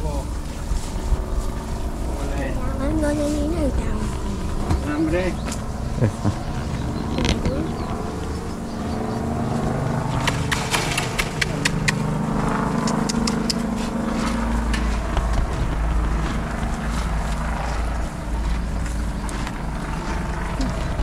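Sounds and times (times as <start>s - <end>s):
deep rumble: 0.0s - 21.0s
vehicle engine running: 0.0s - 21.0s
sharp clicks and rattles: 7.0s - 8.0s.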